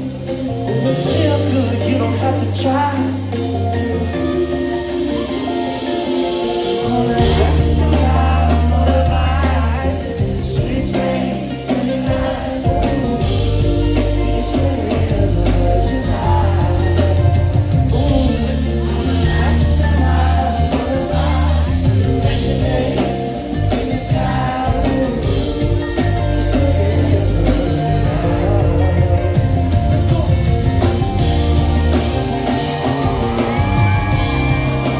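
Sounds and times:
backing singers: 0:00.0 - 0:34.9
drum kit: 0:00.0 - 0:34.9
electric guitar: 0:00.0 - 0:34.9
heavy bass: 0:00.0 - 0:34.9
live soul band playing: 0:00.0 - 0:34.9
man singing into a microphone: 0:00.6 - 0:03.4, 0:06.6 - 0:29.5.

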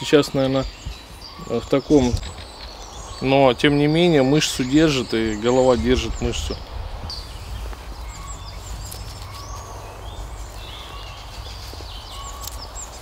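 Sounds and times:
songbirds calling: 0:00.0 - 0:13.0.

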